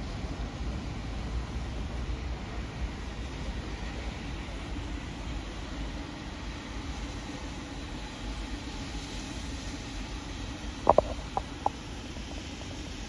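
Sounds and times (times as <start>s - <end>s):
steam locomotive low rumble: 0.0s - 13.0s.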